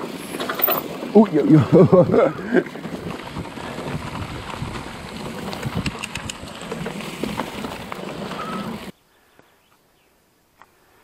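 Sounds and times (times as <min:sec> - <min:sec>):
bike rattles and clicks: 0:00.0 - 0:08.9
wind rushing on microphone: 0:03.0 - 0:06.8.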